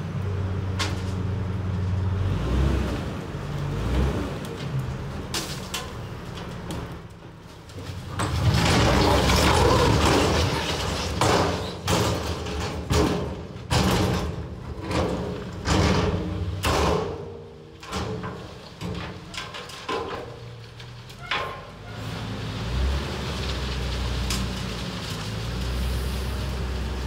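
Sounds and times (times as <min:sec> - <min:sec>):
boulders crashing onto ground: 0:04.6 - 0:21.8.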